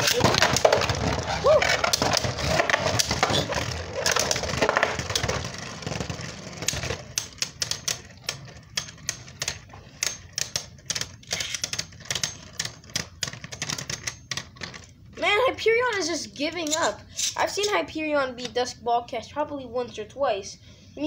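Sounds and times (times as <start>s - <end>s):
spinning tops clacking together: 1.8s - 14.6s.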